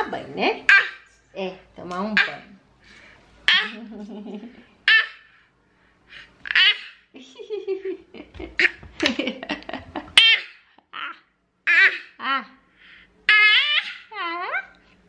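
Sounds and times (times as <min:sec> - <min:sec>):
baby laughing: 0:03.5 - 0:05.2, 0:06.5 - 0:12.2.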